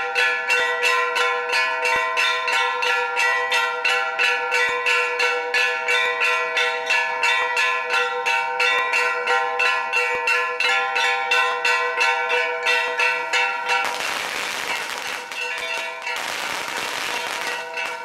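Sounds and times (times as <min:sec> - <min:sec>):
metal bell struck rapidly: 0:12.8 - 0:18.0.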